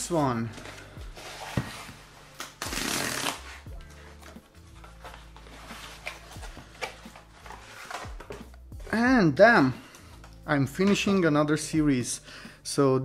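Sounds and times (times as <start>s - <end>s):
quiet background music: 0.0s - 13.0s
cardboard tearing: 1.2s - 3.7s.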